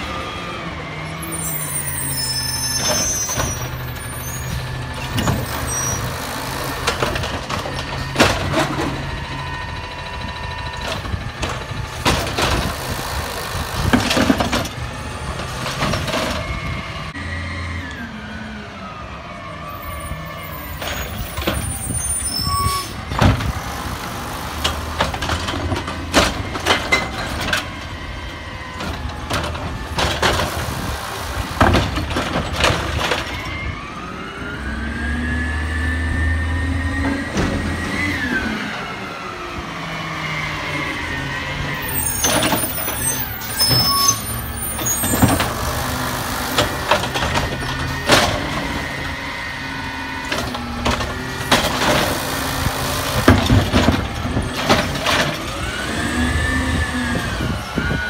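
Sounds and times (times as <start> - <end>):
hydraulic whine: 0.0 - 58.0
knocks and clatter of carts: 2.6 - 16.9, 20.4 - 33.9, 36.9 - 38.7, 41.7 - 58.0
truck engine revving: 34.0 - 58.0.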